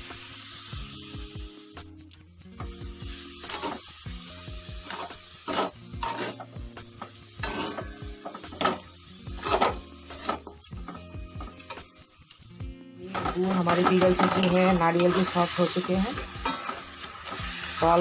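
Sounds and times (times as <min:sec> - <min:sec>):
metal spoon scraping metal pan: 0:03.4 - 0:03.8, 0:04.4 - 0:11.9, 0:13.1 - 0:18.0.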